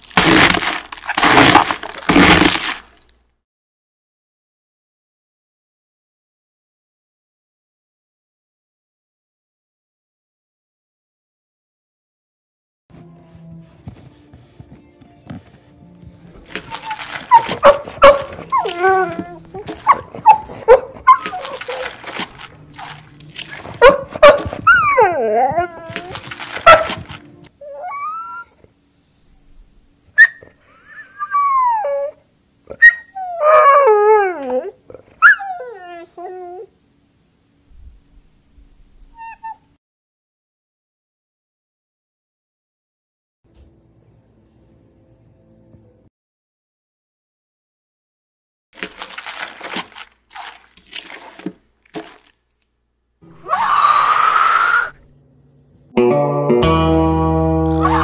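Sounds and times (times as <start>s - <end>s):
crunching crackling bursts: 0.0s - 3.2s, 16.5s - 24.9s, 25.8s - 27.5s, 48.8s - 52.8s
dog yips: 16.4s - 36.7s, 38.0s - 39.8s, 53.3s - 55.0s, 57.8s - 58.0s
dog whining and howling: 16.4s - 36.8s, 38.0s - 39.8s, 53.3s - 55.1s, 57.7s - 58.0s
shrill rising wail: 53.3s - 55.0s, 57.6s - 58.0s.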